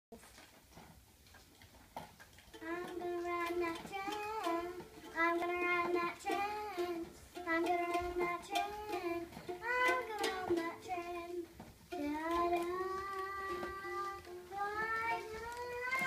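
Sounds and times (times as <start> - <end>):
toy ukulele plucks: 2.5 - 16.0
girl singing: 2.6 - 16.0.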